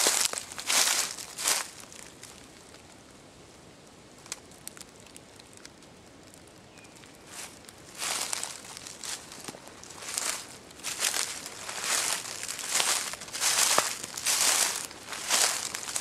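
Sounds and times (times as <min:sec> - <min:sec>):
footsteps crunching leaves: 0:00.0 - 0:02.2, 0:07.3 - 0:16.0.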